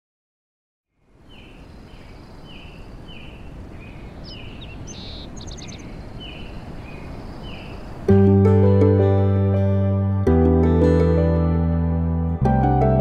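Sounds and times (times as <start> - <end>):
high bird chirps and trill: 1.3 - 8.1.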